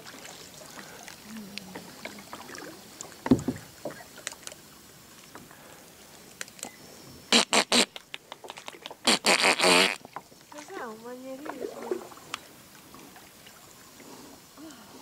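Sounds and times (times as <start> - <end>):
paddle dripping and clicking: 0.0 - 14.8
heavy knock on kayak: 3.2 - 3.7.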